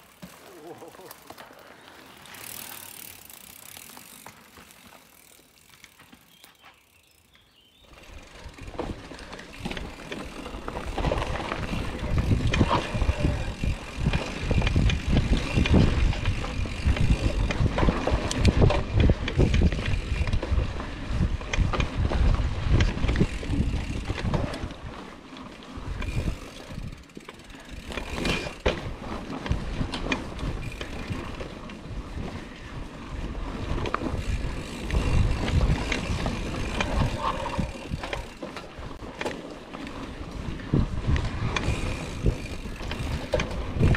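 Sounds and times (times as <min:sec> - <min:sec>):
bike rattling and knocking: 0:00.0 - 0:43.9
bike tyres rumbling on dirt: 0:00.0 - 0:43.9
wind buffeting microphone: 0:08.1 - 0:25.0, 0:27.7 - 0:39.1, 0:40.0 - 0:43.9.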